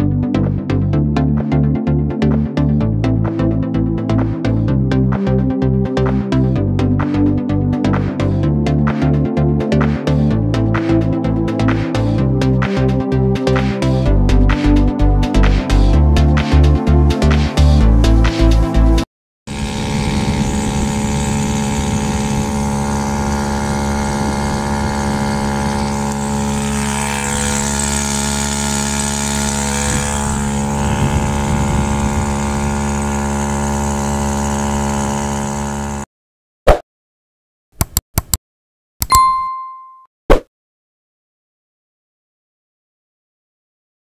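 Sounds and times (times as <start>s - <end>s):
electronic music: 0.0s - 19.0s
outboard motor running: 0.2s - 36.1s
short bell-like ding: 39.0s - 40.1s.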